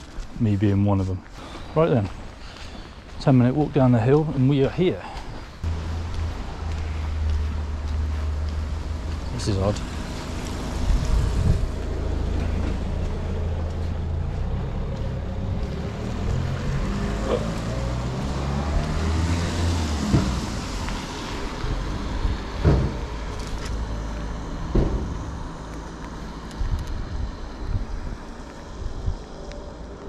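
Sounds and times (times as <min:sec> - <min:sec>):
wind buffeting microphone: 0:08.4 - 0:17.2, 0:20.2 - 0:23.3, 0:26.3 - 0:29.4.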